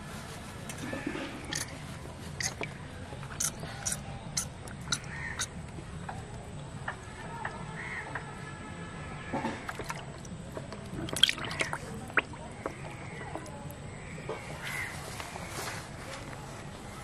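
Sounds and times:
fish splashing in water: 0:09.4 - 0:14.9
water dripping: 0:09.6 - 0:13.9.

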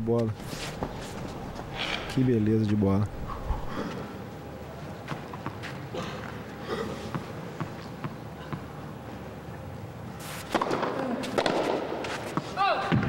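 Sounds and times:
tennis ball bouncing: 0:07.1 - 0:08.7, 0:10.5 - 0:13.0.

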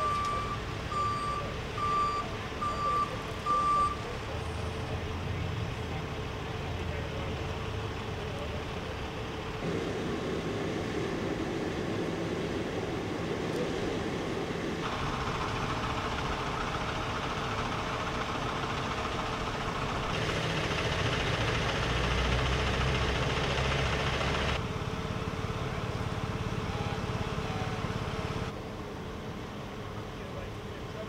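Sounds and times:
traffic engine noise: 0:00.0 - 0:31.0.

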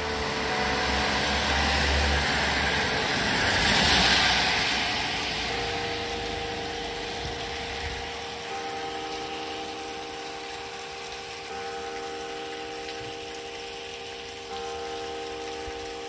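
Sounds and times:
church bells ringing: 0:00.0 - 0:16.0
vehicle passing by: 0:00.2 - 0:08.1.

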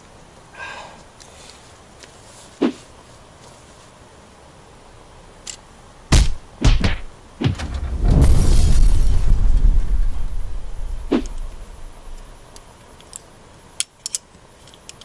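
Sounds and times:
dull thumps: 0:06.1 - 0:12.3
loud steady rushing noise: 0:06.1 - 0:12.6.

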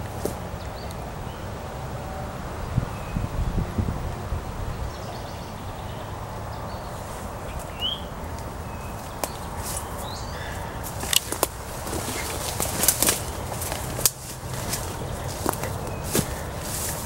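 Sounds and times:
footsteps through undergrowth: 0:00.0 - 0:00.4, 0:06.9 - 0:17.0
faint bird chirps: 0:04.9 - 0:10.8
twigs snapping: 0:08.3 - 0:17.0.

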